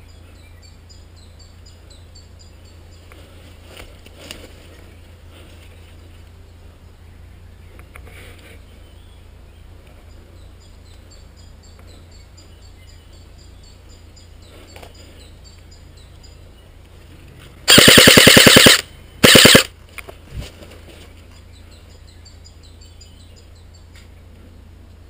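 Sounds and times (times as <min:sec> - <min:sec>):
airsoft rifle firing bursts: 0:17.7 - 0:19.7.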